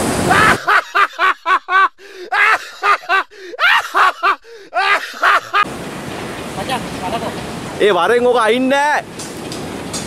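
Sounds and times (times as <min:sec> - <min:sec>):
outdoor background noise: 0:00.0 - 0:10.0
high-pitched laugh sound effect: 0:00.3 - 0:05.7
man laughing: 0:00.3 - 0:05.7.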